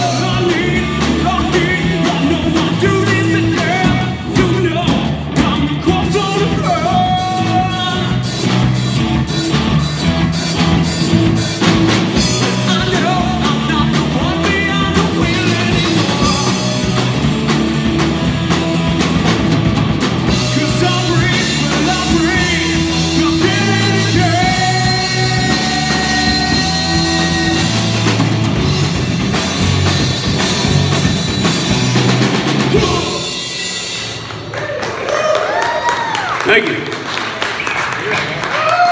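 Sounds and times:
man singing: 0.0s - 8.6s, 12.1s - 17.2s, 20.3s - 28.4s, 32.6s - 33.5s
drum kit: 0.0s - 36.3s
electric guitars: 0.0s - 36.3s.

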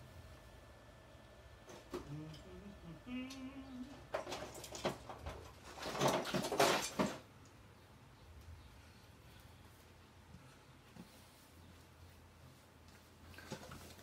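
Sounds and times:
person humming: 1.8s - 4.1s
rustling and clattering knocks: 4.0s - 7.3s.

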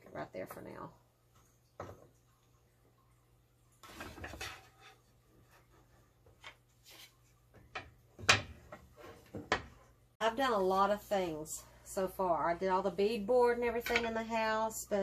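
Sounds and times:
wooden slats knocking and scraping: 3.8s - 9.8s.

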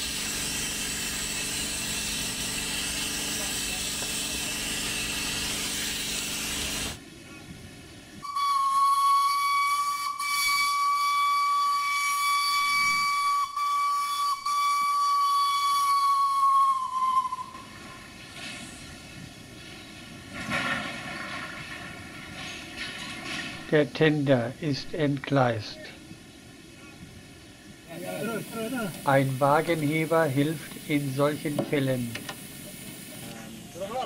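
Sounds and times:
high steam whistle blast: 0.0s - 7.0s, 8.2s - 18.9s
steam hissing: 0.0s - 7.4s, 8.2s - 25.6s, 27.6s - 34.0s.

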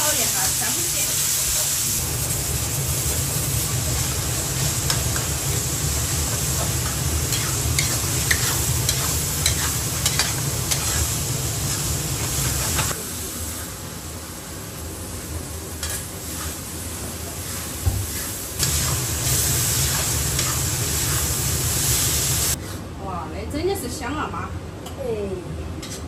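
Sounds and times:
meat sizzling in wok: 0.0s - 22.8s
metal spatula scraping wok: 3.0s - 12.9s, 15.8s - 16.7s, 17.3s - 22.8s.

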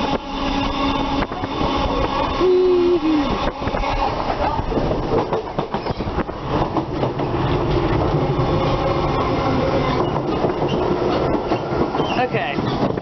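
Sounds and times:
train rumbling on rails: 0.0s - 13.0s
wheels clicking over track: 3.4s - 9.0s.

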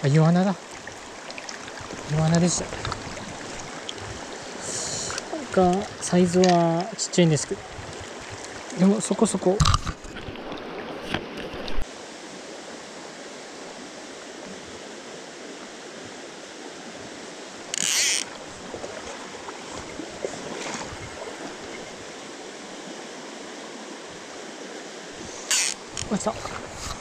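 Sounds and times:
stream rushing over cobbles: 0.0s - 27.0s
faint clicks: 5.0s - 6.6s.

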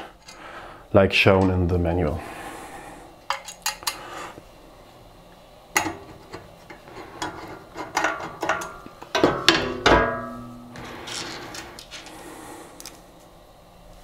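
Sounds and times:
metal clanks ringing: 8.5s - 11.5s.

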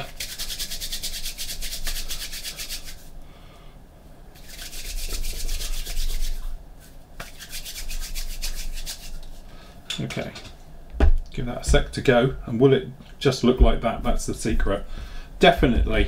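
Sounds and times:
hands rubbing together: 0.0s - 3.1s, 4.4s - 9.5s.

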